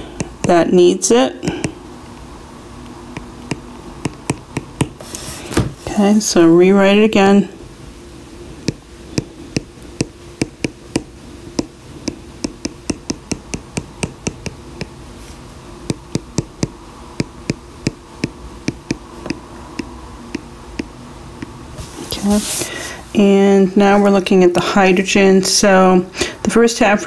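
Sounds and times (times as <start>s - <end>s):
stylus tapping on glass screen: 0.0s - 0.6s, 3.1s - 5.0s, 8.6s - 15.0s, 15.9s - 21.6s
faint steady hum: 0.0s - 27.0s.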